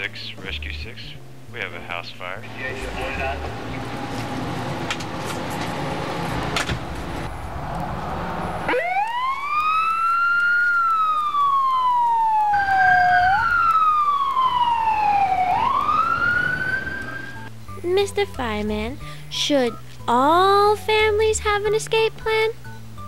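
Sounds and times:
emergency siren wailing: 0:05.8 - 0:17.5.

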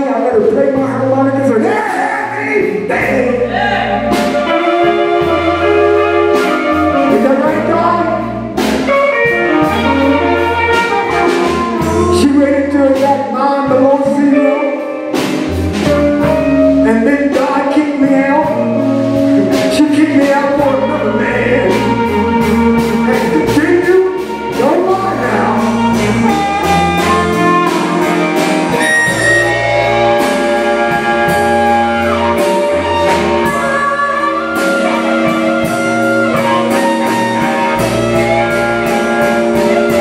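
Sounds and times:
person singing: 0:00.0 - 0:14.9, 0:15.8 - 0:40.0
drum kit steady beat: 0:00.0 - 0:40.0
electric guitar: 0:00.0 - 0:40.0
wailing harmonica: 0:03.4 - 0:12.4, 0:18.5 - 0:40.0.

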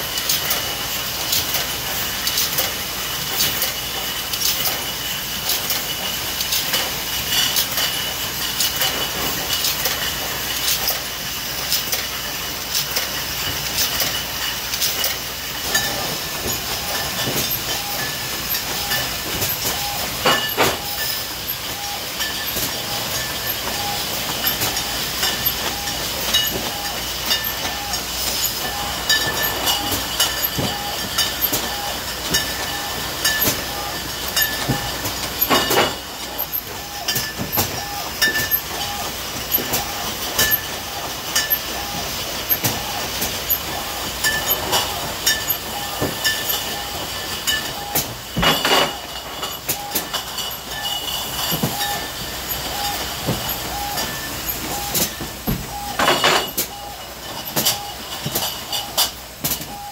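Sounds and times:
bottling machine clatter and hiss: 0:00.0 - 0:59.9
glass bottles clinking: 0:18.8 - 0:23.8, 0:28.4 - 0:36.5, 0:44.2 - 0:47.8, 0:48.4 - 0:54.2.

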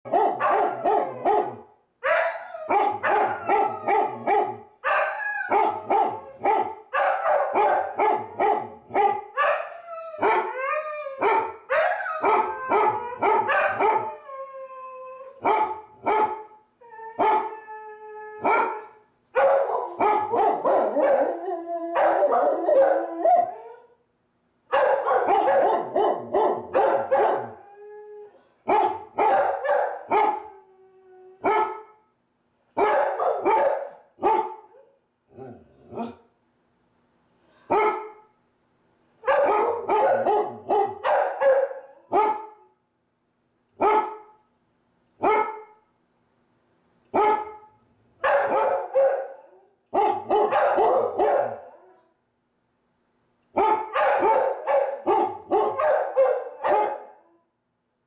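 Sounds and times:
dogs barking: 0:00.0 - 0:14.1, 0:15.4 - 0:16.5, 0:17.2 - 0:17.6, 0:18.4 - 0:23.7, 0:24.7 - 0:27.6, 0:28.7 - 0:30.5, 0:31.4 - 0:31.9, 0:32.8 - 0:34.7, 0:37.7 - 0:38.2, 0:39.2 - 0:42.5, 0:43.8 - 0:44.2, 0:45.2 - 0:45.7, 0:47.2 - 0:51.8, 0:53.6 - 0:57.2
dogs howling: 0:00.1 - 0:06.5, 0:09.4 - 0:15.5, 0:19.7 - 0:23.9.

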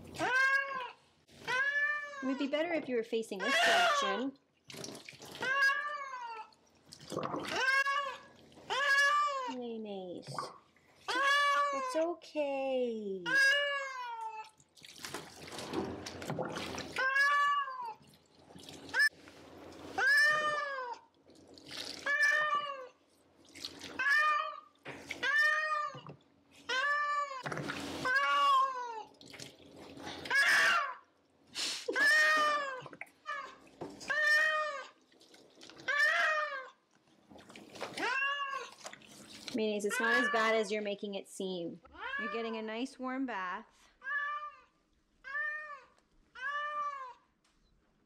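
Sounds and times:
bath water splashing: 0:03.4 - 0:09.5, 0:14.2 - 0:26.8, 0:27.4 - 0:31.0, 0:31.6 - 0:40.7
cat yowling: 0:07.5 - 0:09.5, 0:24.0 - 0:26.0, 0:45.3 - 0:47.2.

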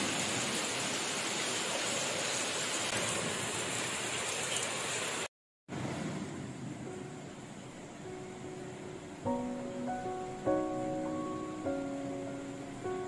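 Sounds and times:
rain splashing into puddles: 0:00.0 - 0:05.3.

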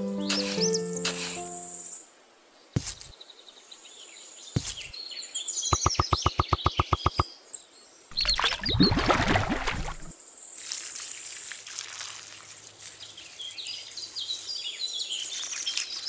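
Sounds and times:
small birds chirping: 0:00.0 - 0:09.1, 0:12.8 - 0:16.0
fast run of clicks: 0:05.8 - 0:07.2
watering can gurgling in water: 0:08.1 - 0:10.1.

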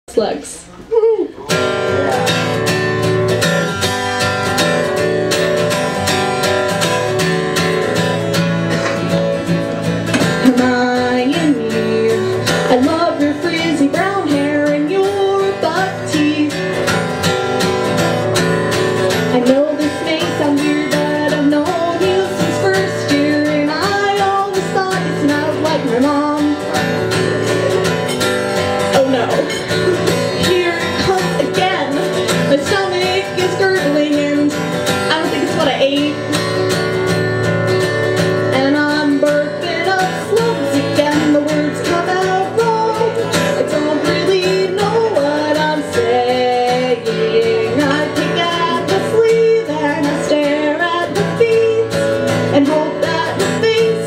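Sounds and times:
acoustic guitar strumming: 0:01.4 - 0:54.0
woman singing: 0:10.2 - 0:28.0, 0:28.6 - 0:37.1, 0:38.1 - 0:54.0.

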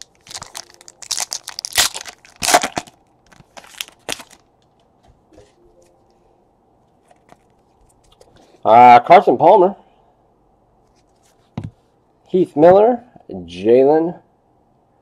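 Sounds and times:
foil wrapper tearing and crinkling: 0:00.0 - 0:04.4.

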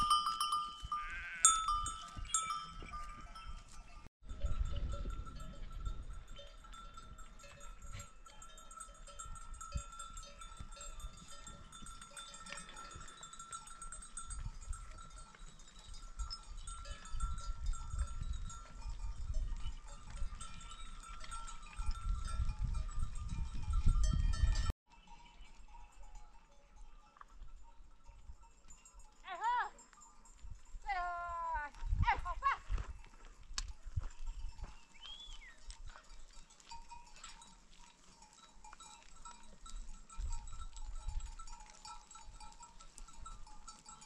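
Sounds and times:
animal bells ringing: 0:00.0 - 0:44.0
wind rumbling on microphone: 0:01.6 - 0:08.3, 0:09.0 - 0:24.7, 0:30.3 - 0:36.4, 0:39.6 - 0:43.6.

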